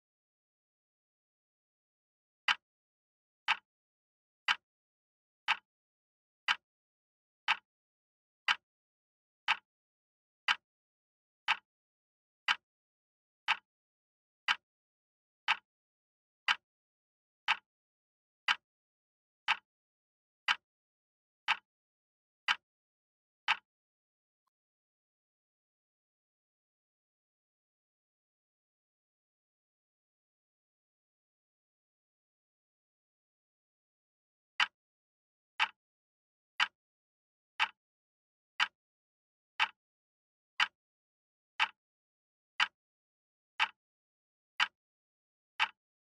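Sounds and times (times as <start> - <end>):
clock ticks: 2.4 - 2.6, 3.4 - 3.6, 4.4 - 4.6, 5.4 - 5.6, 6.4 - 6.6, 7.4 - 7.6, 9.4 - 9.6, 10.4 - 10.6, 11.4 - 11.7, 12.4 - 12.6, 13.5 - 13.7, 14.4 - 14.6, 15.5 - 15.7, 17.5 - 17.7, 19.5 - 19.7, 20.4 - 20.6, 21.5 - 21.7, 23.5 - 23.7, 34.6 - 34.8, 36.6 - 36.8, 37.6 - 37.8, 38.6 - 38.8, 39.6 - 39.8, 41.6 - 41.8, 43.6 - 43.8.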